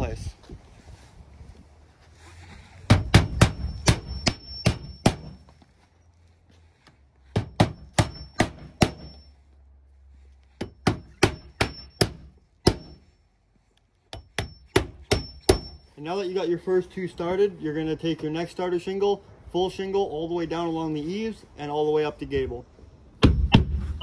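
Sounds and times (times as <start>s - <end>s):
hatchet hammering nails: 2.9s - 5.3s, 7.3s - 9.2s, 10.6s - 12.9s, 14.1s - 15.8s
short metallic ring: 3.5s - 5.3s, 7.5s - 9.4s, 11.1s - 13.0s, 14.4s - 15.9s.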